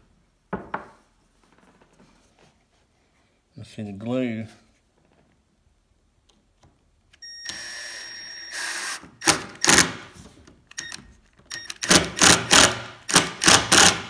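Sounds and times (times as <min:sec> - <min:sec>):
cordless drill whining: 0:07.3 - 0:09.8
drill driving screw into wood: 0:07.4 - 0:10.2, 0:10.8 - 0:14.0.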